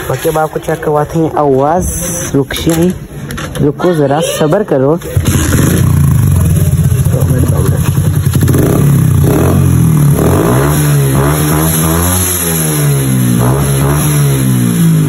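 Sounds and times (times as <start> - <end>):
motorcycle engine idling and revving: 5.0 - 15.0.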